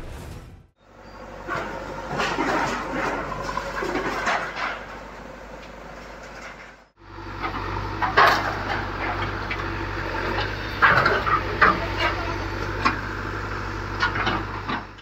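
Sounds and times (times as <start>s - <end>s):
diesel engine running: 0.8s - 15.0s
loud clattering bangs of debris: 1.5s - 5.1s.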